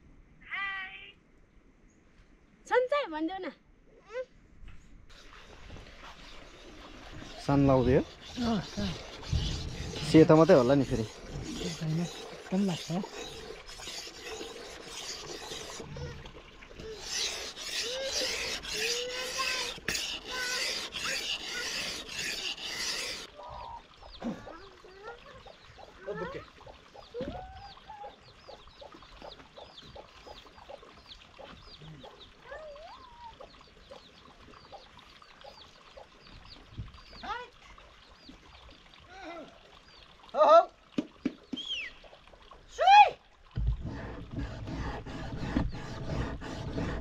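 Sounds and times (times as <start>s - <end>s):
loud rubbing rasping noise: 5.1s - 16.1s, 16.8s - 23.3s, 43.6s - 47.0s
birds chirping and calling: 6.0s - 39.0s.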